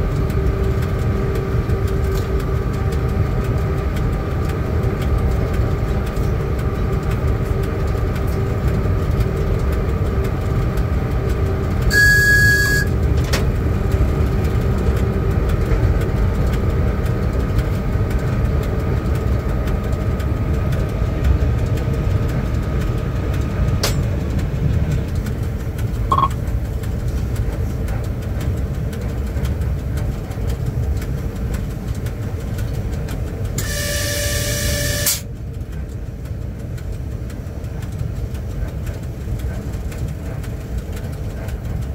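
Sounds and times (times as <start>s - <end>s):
constant electrical hum: 0.0s - 41.9s
low locomotive rumble: 0.0s - 41.9s
high signal tone: 11.9s - 12.9s, 26.1s - 26.4s.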